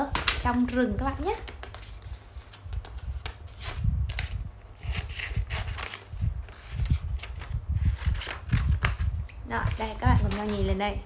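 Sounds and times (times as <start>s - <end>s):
paper rustling: 0.0s - 10.9s.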